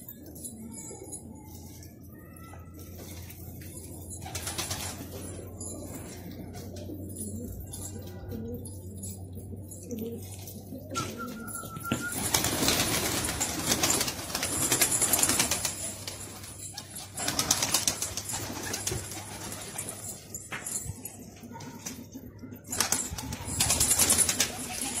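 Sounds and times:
pigeons shuffling: 0.3s - 25.0s
pigeons flapping wings: 4.2s - 5.4s, 11.0s - 20.4s, 22.7s - 25.0s.

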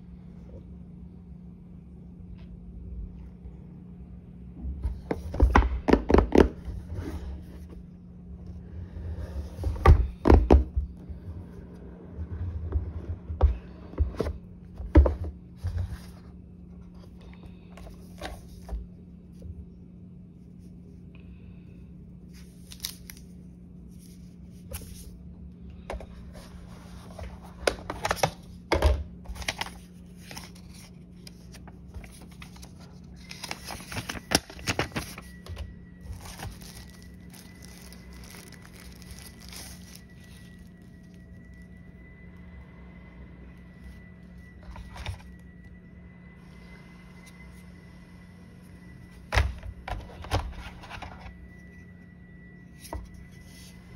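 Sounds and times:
steady low hum: 0.0s - 53.9s
plastic film and paper crinkling: 22.3s - 25.1s, 29.3s - 41.8s.

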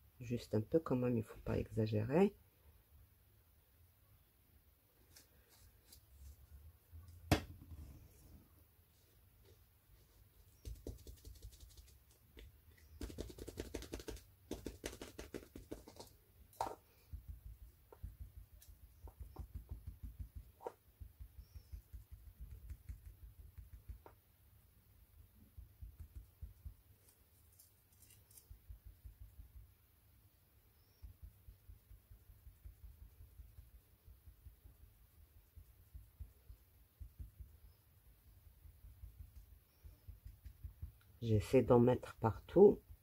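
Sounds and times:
dauber tapping on plastic stencil: 10.6s - 24.2s, 25.6s - 26.9s, 30.8s - 41.2s.

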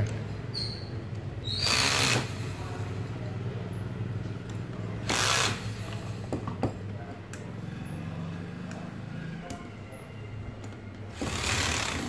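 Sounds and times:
electric screwdriver whirring: 1.6s - 2.4s, 5.0s - 5.7s, 11.1s - 12.0s.

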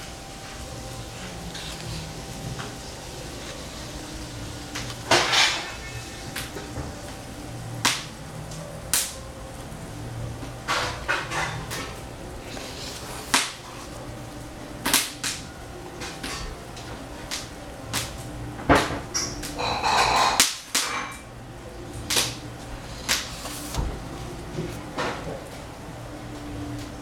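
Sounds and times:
book pages turning: 0.5s - 4.1s, 4.7s - 6.7s, 11.7s - 14.0s, 22.1s - 25.4s.

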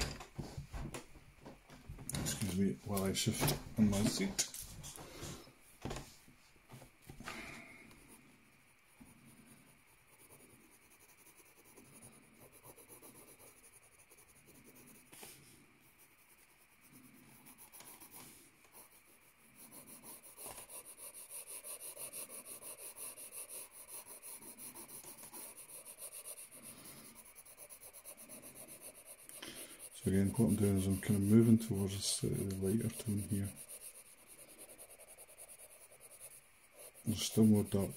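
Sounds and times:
pencil scratching on paper: 7.9s - 37.9s.

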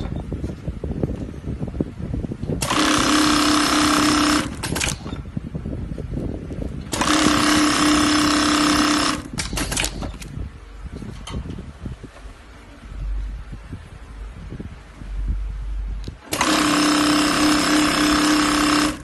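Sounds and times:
sewing machine running: 2.6s - 5.0s, 6.9s - 9.9s, 16.3s - 19.0s
short mechanical clicks: 2.6s - 5.3s, 6.8s - 10.4s, 16.0s - 19.0s.

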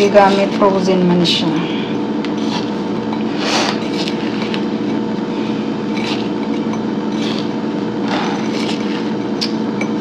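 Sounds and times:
mechanical hum: 0.0s - 10.0s
spatula scraping glass bowl: 2.4s - 10.0s.

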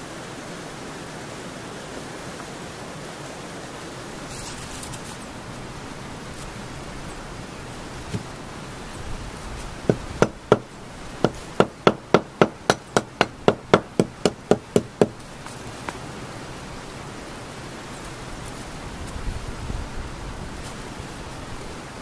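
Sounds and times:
hammering on wooden logs: 9.8s - 16.0s.

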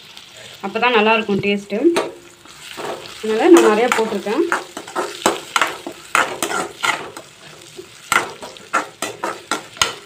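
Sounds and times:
oil sizzling: 0.0s - 10.0s
metal spoon scraping a pan: 2.0s - 10.0s.

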